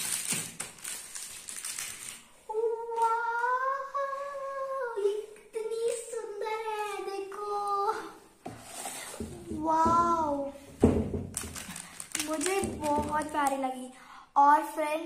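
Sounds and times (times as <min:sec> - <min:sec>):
plastic wrapping crinkling: 0:00.0 - 0:03.1, 0:11.3 - 0:13.8.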